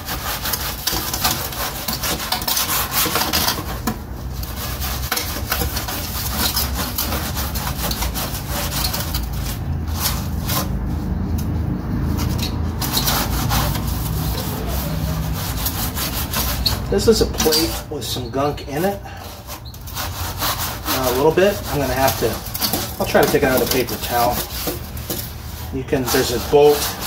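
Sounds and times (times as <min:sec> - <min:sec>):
scrubbing metal grill plate: 0:00.0 - 0:27.0.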